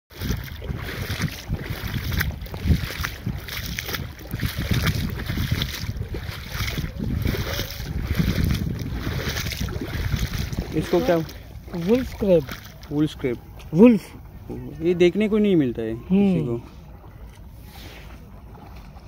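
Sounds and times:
wind buffeting microphone: 0.1 - 15.0
shallow water splashing: 0.1 - 19.0.

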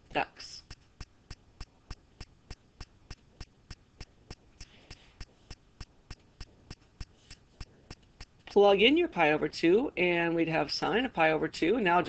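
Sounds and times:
faint steady clicking: 0.0 - 8.6.

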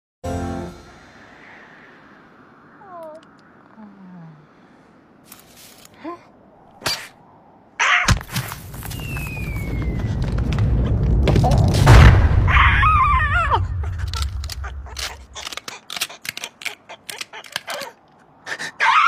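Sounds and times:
falling whistle: 9.0 - 10.2.

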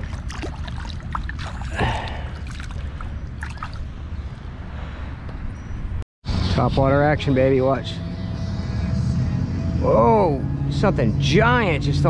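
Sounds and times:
short water splash: 0.0 - 3.9
water sloshing and dripping: 0.0 - 4.6.

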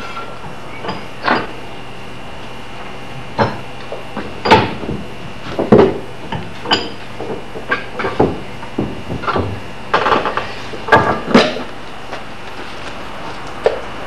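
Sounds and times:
steady low hum: 0.0 - 14.0
wooden and metal knocks: 4.2 - 10.3.

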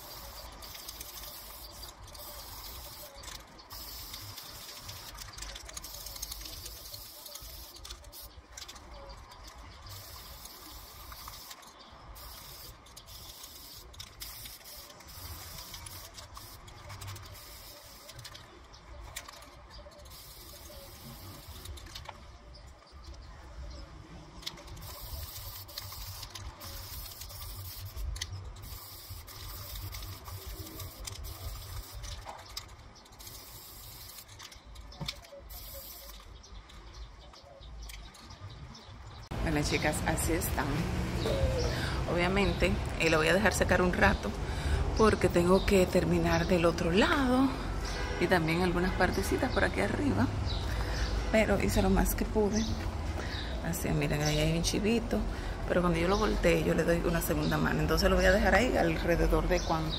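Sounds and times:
spray paint can hissing: 0.0 - 22.1, 24.4 - 37.0.

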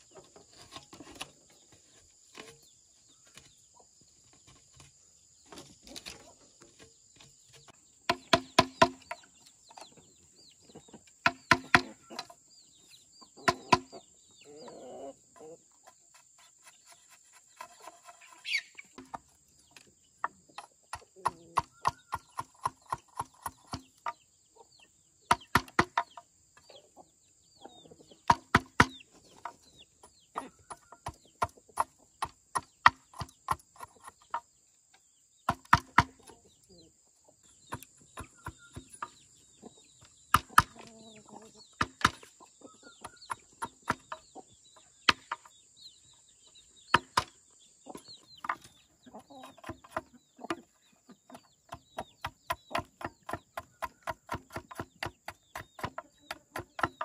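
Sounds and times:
tool striking knocks: 8.0 - 9.3, 11.2 - 12.3, 13.4 - 14.0.

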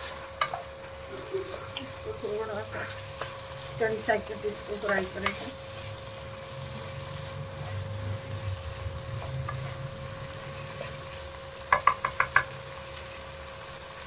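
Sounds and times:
vegetables frying in oil: 0.0 - 14.0
wooden spatula knocking on pan: 11.7 - 12.6.

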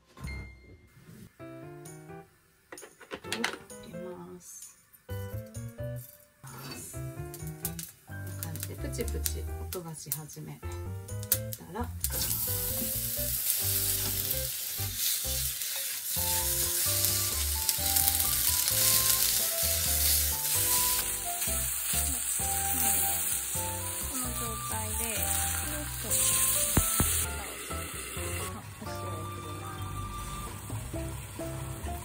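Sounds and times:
vegetable slices sizzling in oil: 6.0 - 10.4, 11.1 - 32.0.

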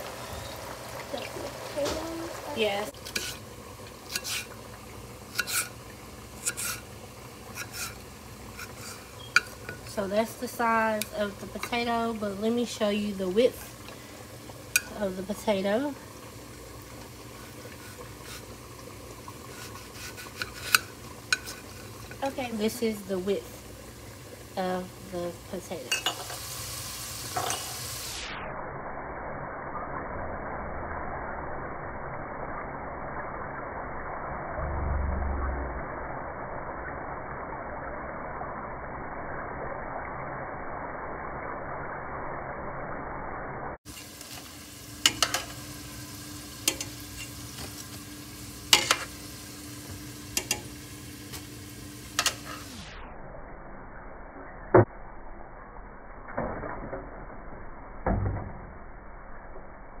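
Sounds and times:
potatoes deep-frying in oil: 0.0 - 60.0
low rumble: 28.4 - 43.8.

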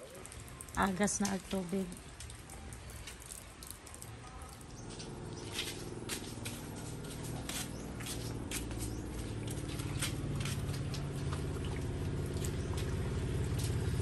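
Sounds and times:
footsteps on wet concrete: 1.0 - 14.0.

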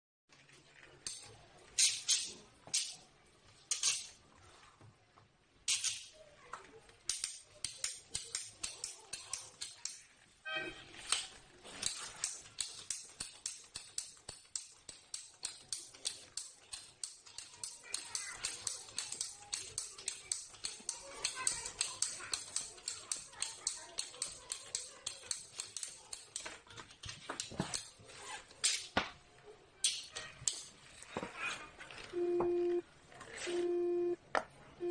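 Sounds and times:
ratchet cable cutter clicking: 11.8 - 26.5.

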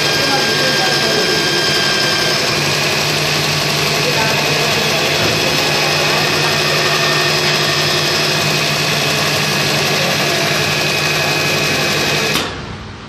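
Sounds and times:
machine motor loud low hum: 0.0 - 13.0.

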